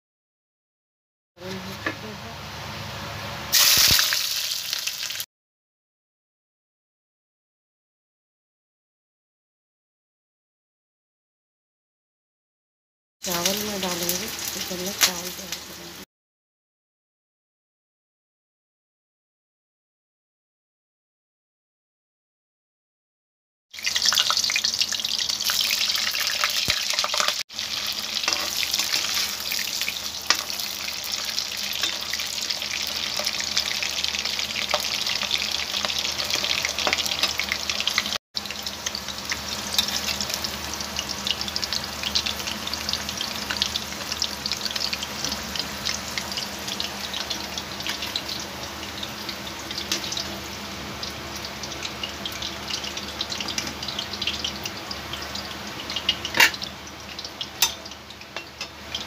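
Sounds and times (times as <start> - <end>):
potatoes deep-frying in oil: 1.4 - 5.3, 13.2 - 16.1, 23.7 - 59.0.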